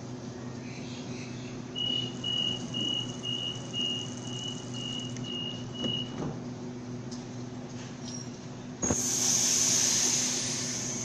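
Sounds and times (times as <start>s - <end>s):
low hum of standing train: 0.0s - 11.0s
train door warning beeps: 1.8s - 6.2s.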